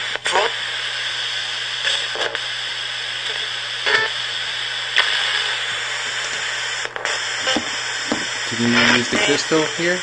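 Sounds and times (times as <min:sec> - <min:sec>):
radio static hiss: 0:00.0 - 0:10.0
clipped broadcast snippets: 0:03.2 - 0:10.0.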